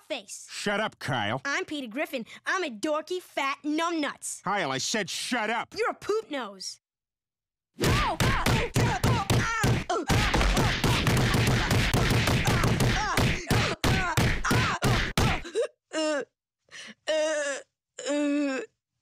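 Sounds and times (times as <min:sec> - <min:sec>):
cartoon punch sound effects: 0:07.8 - 0:15.4
boy groaning: 0:12.4 - 0:16.3, 0:17.0 - 0:18.7.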